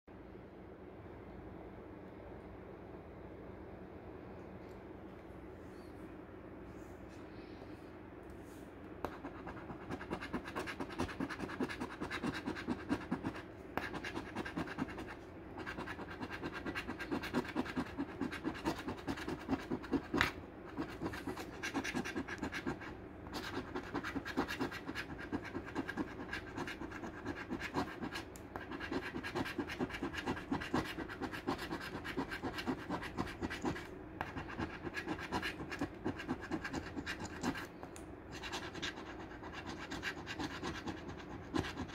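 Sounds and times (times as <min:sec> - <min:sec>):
coin scratching lottery ticket: 0:09.4 - 0:20.2, 0:20.8 - 0:33.8.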